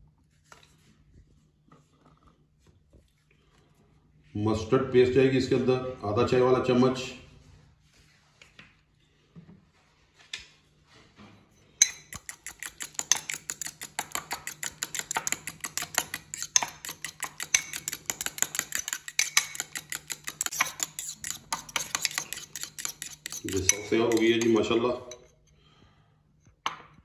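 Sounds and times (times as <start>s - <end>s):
fork clinking against bowl: 11.8s - 25.3s.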